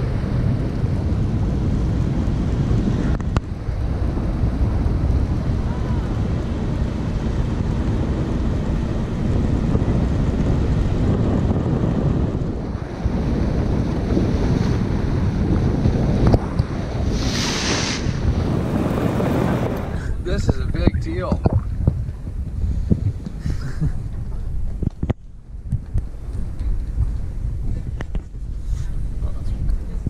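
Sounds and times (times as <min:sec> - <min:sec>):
water rushing along hull: 0:00.0 - 0:23.4
wind buffeting microphone: 0:00.0 - 0:30.0
hiss of spray: 0:17.1 - 0:18.2.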